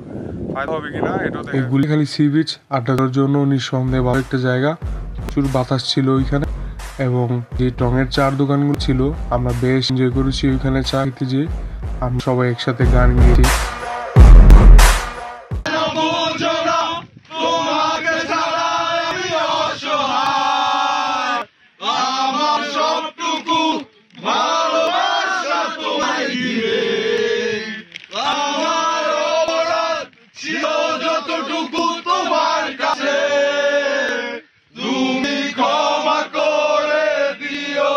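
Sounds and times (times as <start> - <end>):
men singing: 15.1 - 37.9.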